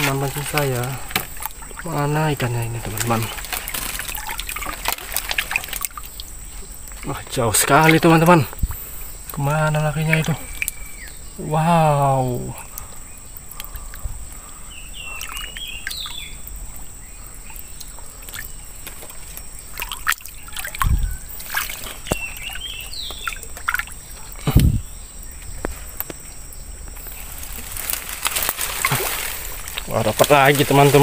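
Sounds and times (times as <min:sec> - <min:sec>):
bird chirping: 0:00.0 - 0:04.8, 0:06.1 - 0:25.6
heavy water splashes: 0:00.0 - 0:10.7, 0:19.7 - 0:24.6, 0:27.2 - 0:31.0
water sloshing from wading: 0:00.0 - 0:11.3, 0:12.6 - 0:24.6, 0:27.0 - 0:31.0.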